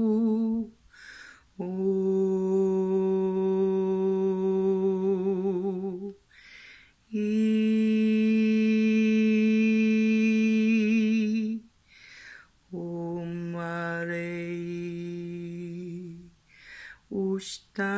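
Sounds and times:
woman humming: 0.0 - 0.7, 1.6 - 6.2
woman breathing in: 0.9 - 1.5, 6.3 - 7.0, 11.8 - 12.6, 16.4 - 17.1.

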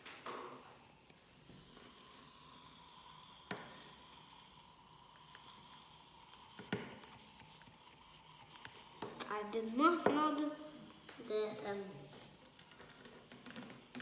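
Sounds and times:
faint fizzing in a test tube: 0.2 - 14.0.

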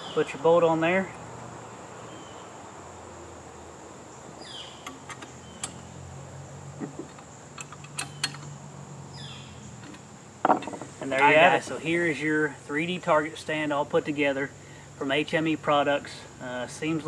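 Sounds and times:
high insect chorus: 0.0 - 17.0
small metallic clicks and taps: 4.8 - 5.8, 6.8 - 8.5, 9.8 - 10.9.

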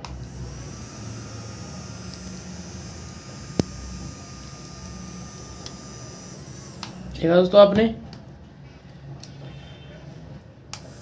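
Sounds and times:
small electric fan motor whine: 0.0 - 7.5, 10.7 - 11.0.

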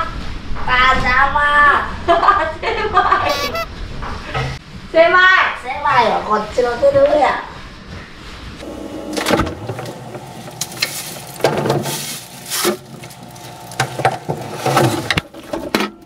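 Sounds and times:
plastic bag rustling: 10.7 - 15.1.

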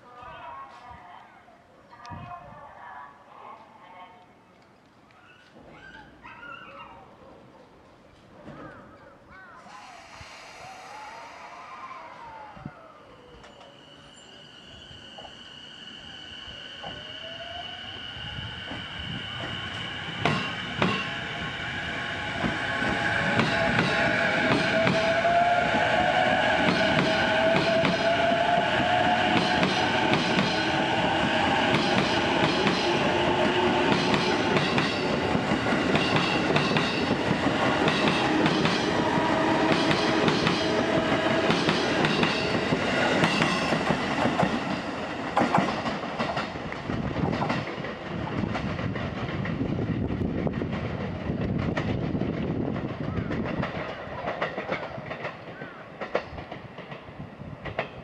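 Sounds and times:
wheels clacking on rail joints: 33.6 - 49.6, 52.8 - 58.0.

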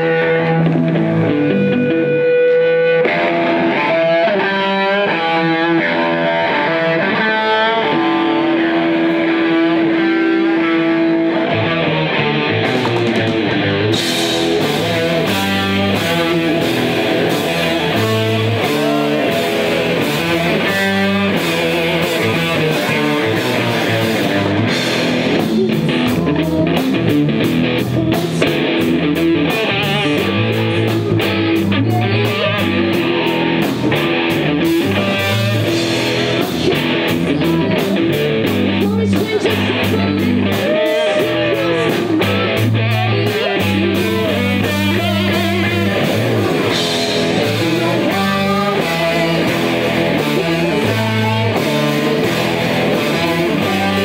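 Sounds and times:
bass guitar: 0.0 - 54.0
drum kit: 0.0 - 54.0
electric guitar: 0.0 - 54.0
live rock band playing: 0.0 - 54.0.

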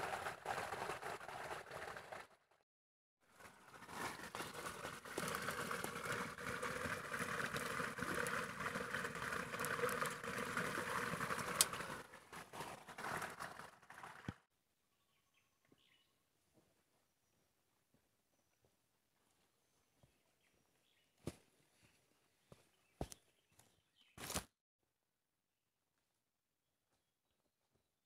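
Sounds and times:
spring water trickling over stones: 3.3 - 14.4.

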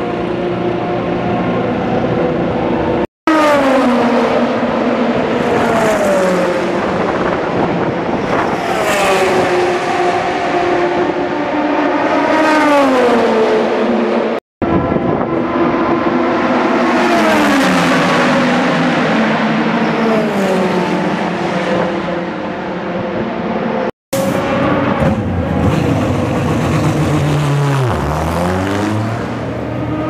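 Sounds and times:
engine drone: 0.0 - 30.0
racing cars passing at speed: 0.0 - 30.0.

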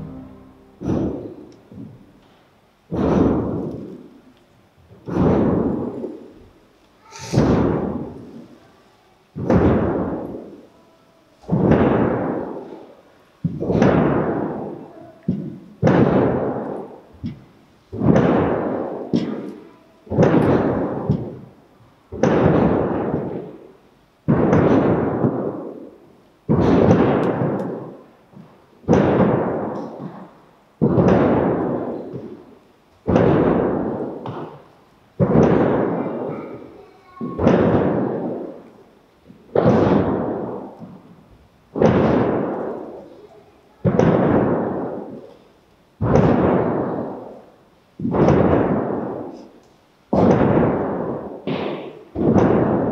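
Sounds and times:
hand drum beats echoing: 0.0 - 1.4.

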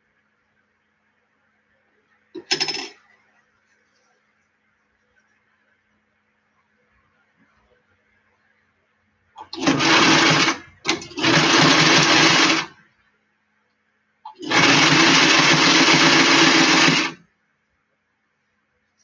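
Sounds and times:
electric sewing machine stitching: 9.4 - 12.7, 14.3 - 17.2.

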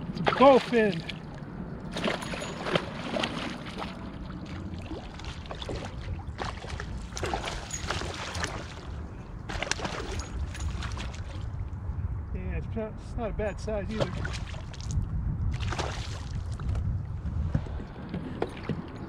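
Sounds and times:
steady low rumble: 0.0 - 19.0
fish splashing at water surface: 1.9 - 11.5.

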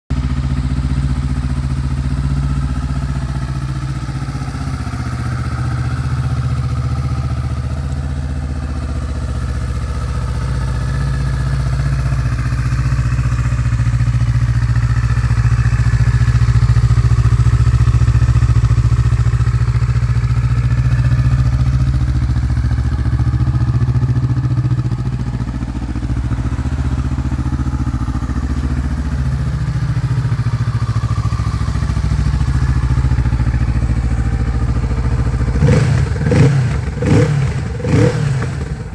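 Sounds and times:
motorcycle engine idling: 0.1 - 38.9.

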